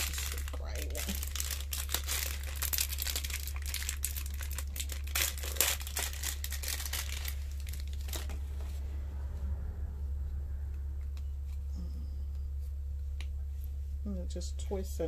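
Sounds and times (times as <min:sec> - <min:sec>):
plastic crinkling and tearing: 0:00.0 - 0:08.7
steady low hum: 0:00.0 - 0:15.0.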